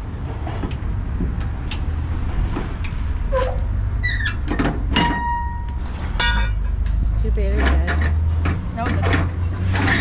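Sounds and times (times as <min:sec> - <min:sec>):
metal winch squeaking and knocking: 0:03.3 - 0:06.8, 0:07.5 - 0:10.0
held metal squeal: 0:09.7 - 0:10.0.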